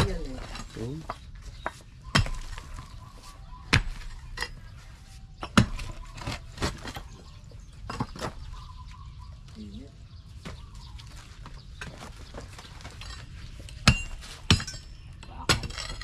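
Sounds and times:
stones and clods knocking: 0:00.0 - 0:03.0, 0:05.4 - 0:08.6
pickaxe striking stony soil: 0:02.0 - 0:02.9, 0:03.7 - 0:04.6, 0:05.4 - 0:06.8.

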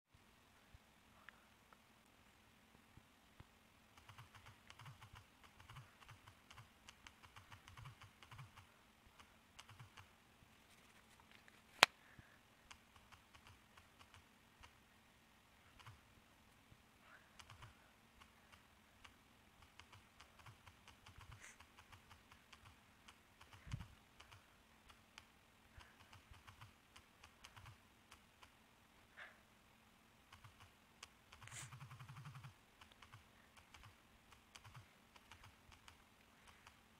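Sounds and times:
typing on smartphone screen: 0:04.0 - 0:10.1, 0:12.7 - 0:14.8, 0:15.6 - 0:16.1, 0:17.2 - 0:28.6, 0:30.3 - 0:36.9.

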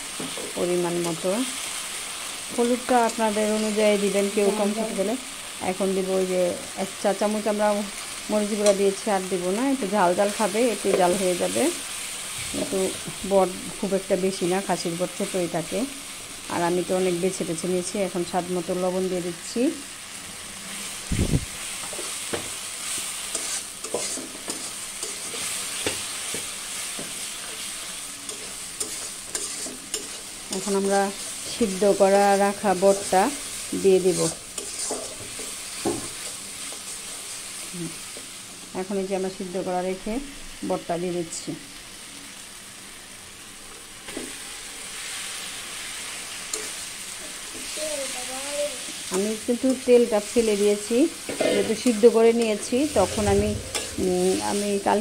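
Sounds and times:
masala sizzling in a pan: 0:00.0 - 0:55.0
spoon stirring and scraping: 0:21.8 - 0:31.6, 0:32.9 - 0:37.6, 0:46.5 - 0:46.8.

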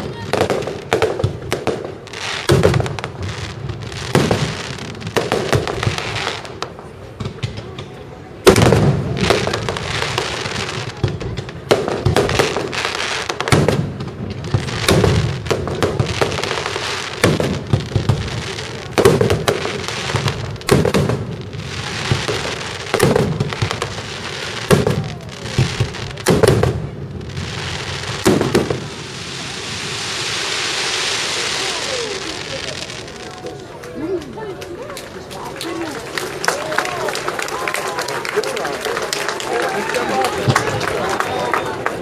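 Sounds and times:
firework crackling hiss: 0:00.0 - 0:07.1, 0:08.5 - 0:33.8
firework shells bursting: 0:11.3 - 0:33.2.

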